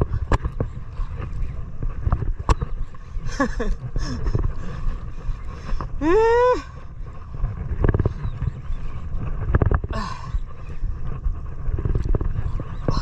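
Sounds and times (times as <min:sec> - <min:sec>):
boat engine rumble: 0:00.0 - 0:13.0
wind on microphone: 0:00.0 - 0:13.0
person whooping: 0:06.0 - 0:06.8.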